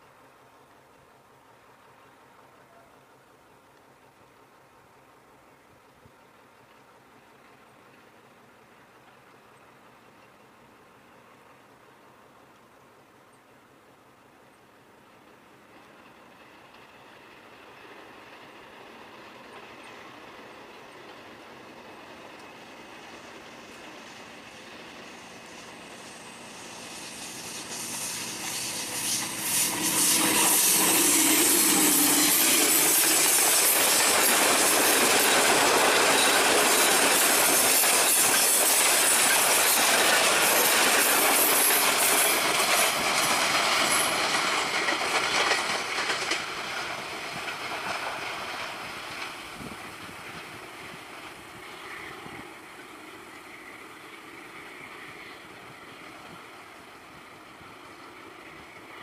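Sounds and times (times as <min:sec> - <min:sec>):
diesel locomotive passing: 0:00.1 - 0:59.0
train wheels clattering over rail joints: 0:27.0 - 0:52.2.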